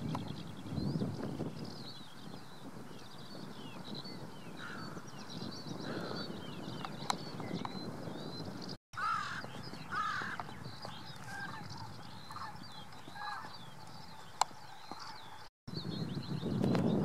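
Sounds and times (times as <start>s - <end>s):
small birds chirping: 0.0s - 17.0s
harsh crow-like calls: 9.0s - 10.5s.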